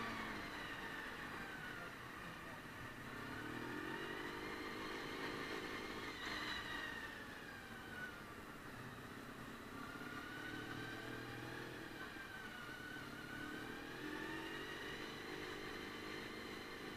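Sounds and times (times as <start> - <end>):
motorcycle engine revving: 3.0 - 6.8, 9.7 - 16.9.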